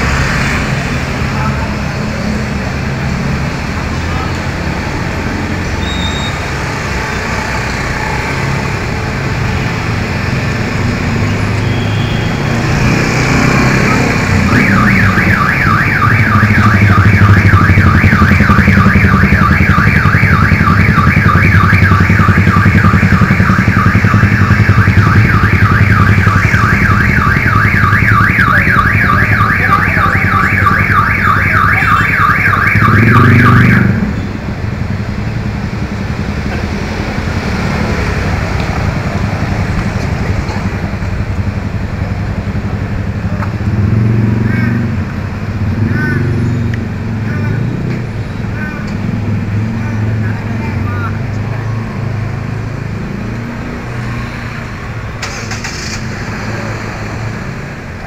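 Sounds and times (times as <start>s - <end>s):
street traffic: 0.0s - 58.0s
electronic alarm warbling: 14.4s - 34.0s.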